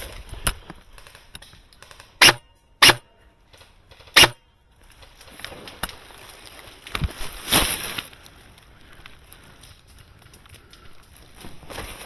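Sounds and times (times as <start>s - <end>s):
airsoft gun shots: 2.2s - 3.1s, 4.1s - 4.4s.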